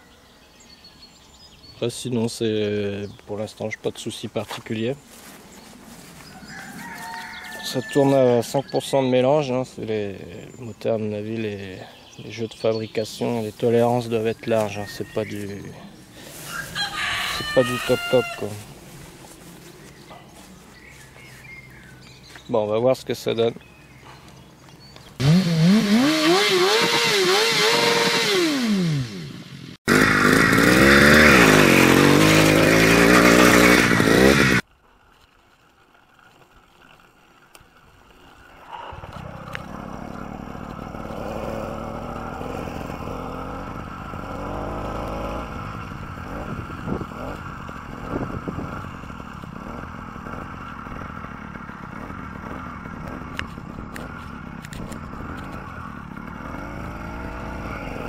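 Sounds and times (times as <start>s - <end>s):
wind: 0.0s - 58.0s
tyres crunching on gravel: 3.0s - 25.4s, 29.9s - 57.8s
small two-stroke engine running: 24.8s - 34.6s, 37.8s - 58.0s
engine revving hard: 25.2s - 34.6s, 38.7s - 53.4s, 55.2s - 58.0s.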